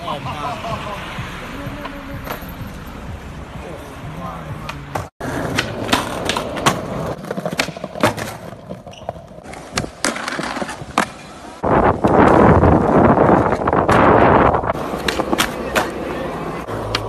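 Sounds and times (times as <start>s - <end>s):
skateboard clacks: 4.7s - 11.3s, 13.4s - 17.0s
skateboard wheels rolling: 4.9s - 17.0s.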